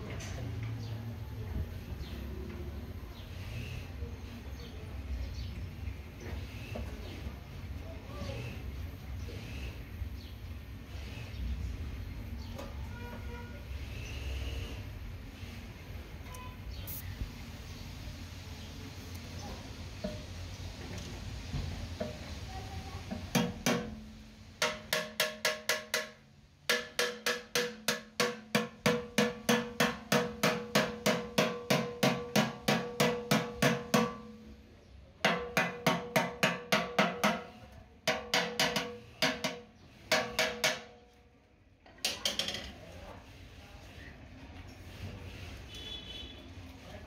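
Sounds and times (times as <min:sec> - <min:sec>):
hammer tapping on steel tank: 0:23.1 - 0:24.0, 0:24.6 - 0:34.4, 0:35.2 - 0:41.0.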